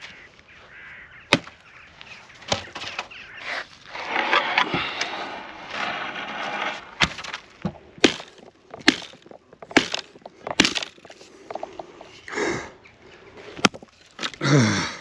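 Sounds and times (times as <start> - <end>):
hatchet cracking wood: 1.3 - 1.6, 7.0 - 11.2
wood crackling and splintering: 1.3 - 12.3, 13.6 - 14.7.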